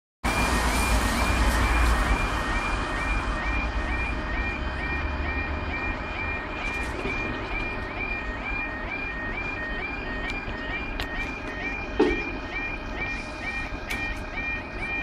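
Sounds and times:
level crossing alarm: 0:00.2 - 0:15.0
tyres hissing on wet road: 0:00.3 - 0:02.9.

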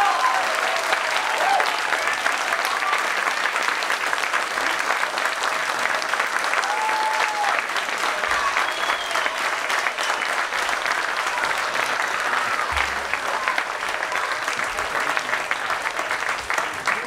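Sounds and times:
audience applauding: 0:00.0 - 0:17.0.

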